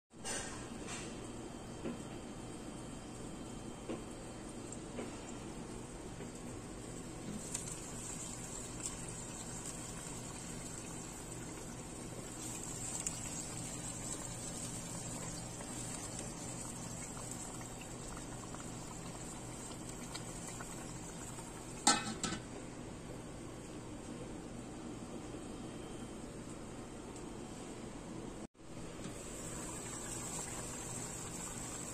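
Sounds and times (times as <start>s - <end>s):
sauce bubbling in a pan: 6.3s - 22.2s, 29.1s - 31.9s.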